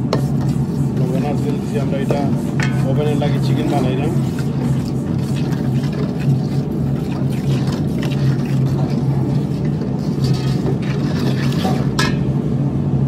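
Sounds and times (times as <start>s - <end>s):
low machine hum: 0.0s - 13.0s
metal spoon scraping a steel pot: 0.1s - 12.2s.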